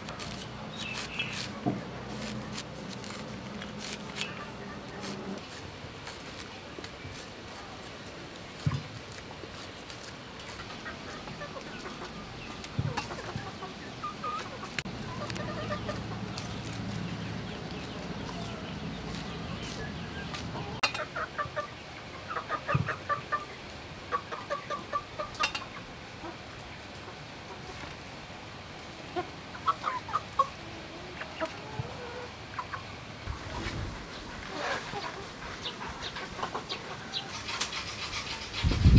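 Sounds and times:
chickens clucking: 0:03.1 - 0:05.4, 0:10.4 - 0:28.0, 0:29.0 - 0:38.9.

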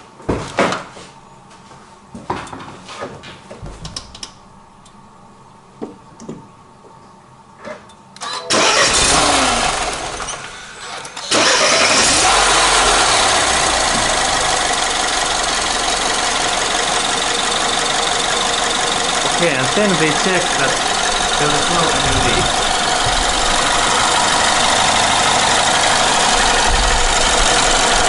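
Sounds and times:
car engine starting and running: 0:08.2 - 0:28.0.

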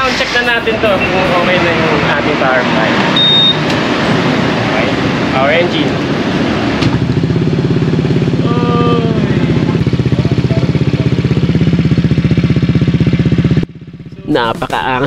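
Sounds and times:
scooter engine idling: 0:06.8 - 0:15.0.

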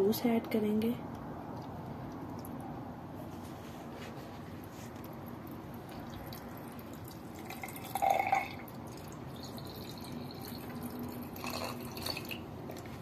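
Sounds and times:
liquid gurgle: 0:05.0 - 0:12.9
juice pouring into glass: 0:05.5 - 0:12.9.

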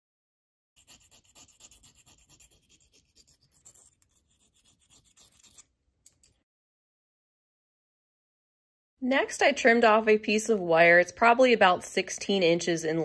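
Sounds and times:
file rubbing on metal: 0:00.8 - 0:05.7.

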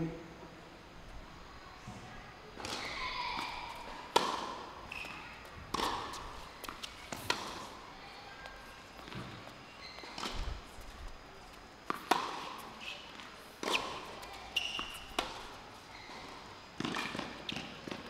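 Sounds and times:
tennis racket hitting ball: 0:02.6 - 0:05.1, 0:05.7 - 0:07.7, 0:11.9 - 0:12.6
tennis ball bouncing on court: 0:02.6 - 0:07.8, 0:11.8 - 0:12.6, 0:13.2 - 0:18.0.

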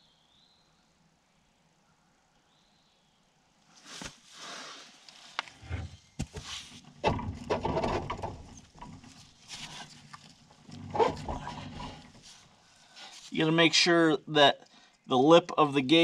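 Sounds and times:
metal parts clunking and clicking: 0:06.9 - 0:12.2.

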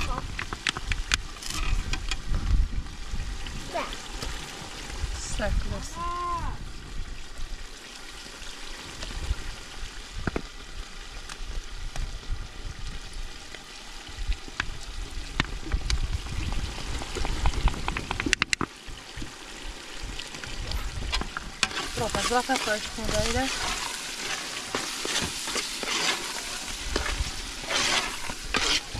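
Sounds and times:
onions sizzling in oil: 0:19.0 - 0:28.9.

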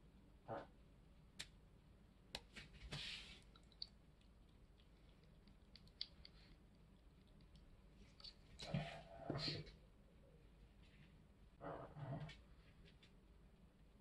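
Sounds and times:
soft hiss of powder sprinkling: 0:02.4 - 0:08.9.

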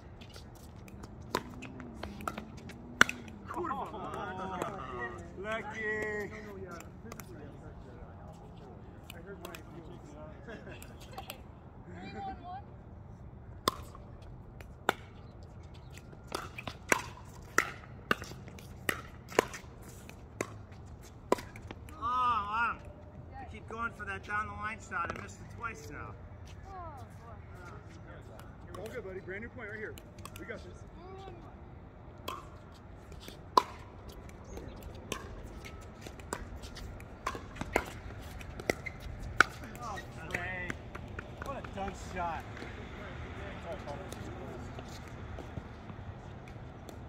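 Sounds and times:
paddles hitting pickleball: 0:00.2 - 0:07.4, 0:09.0 - 0:09.8, 0:13.6 - 0:22.9, 0:28.3 - 0:30.6, 0:32.2 - 0:47.0.

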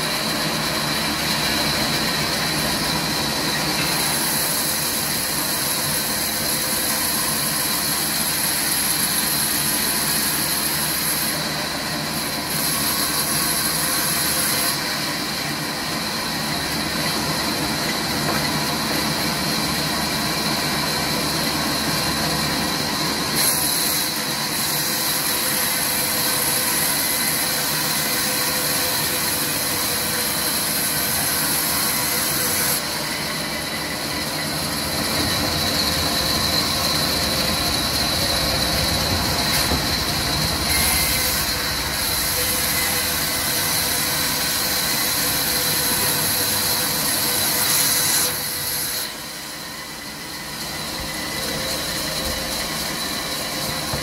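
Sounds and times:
band saw cutting log: 0:00.0 - 0:54.0
machine hum: 0:33.0 - 0:45.4.

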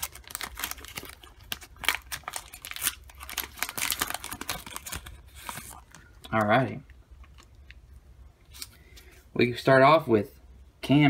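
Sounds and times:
foil wrapper crinkling and tearing: 0:00.0 - 0:06.5.

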